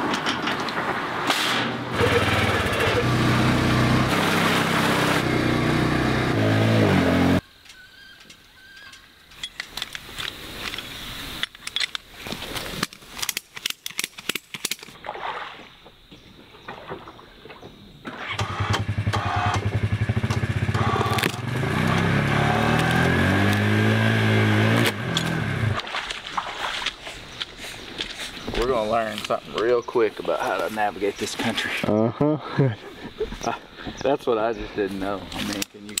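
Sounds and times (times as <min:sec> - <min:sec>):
vehicle engine revving hard: 0:01.9 - 0:07.4, 0:18.3 - 0:25.8.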